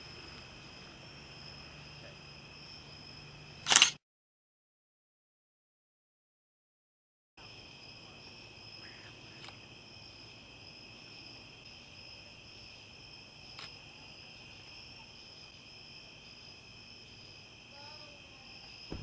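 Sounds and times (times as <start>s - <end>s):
night insects chorus: 0.0s - 3.9s, 7.4s - 19.0s
short sharp clicks: 3.6s - 4.0s.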